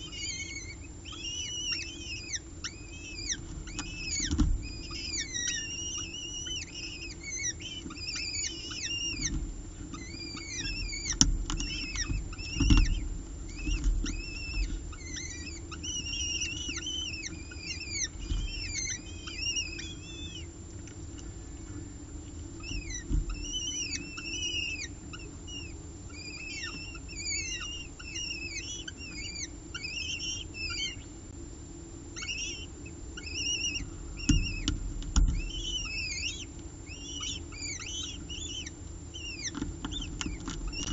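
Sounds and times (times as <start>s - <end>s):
falcon chicks begging peeps: 0.0s - 31.2s, 32.1s - 40.9s
dull knocks: 10.4s - 15.3s, 22.8s - 23.6s, 34.2s - 36.0s.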